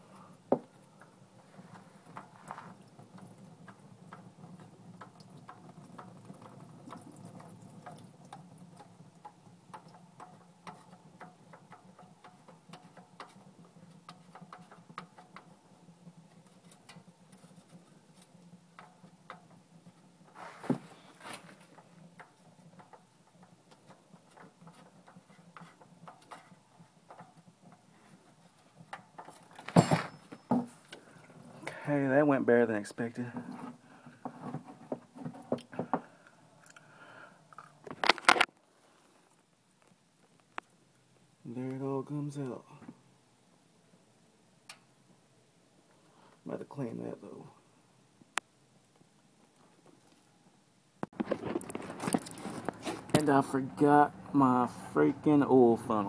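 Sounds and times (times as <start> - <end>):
oil dripping into pan: 0.1 - 20.4, 21.6 - 29.3, 35.6 - 37.9.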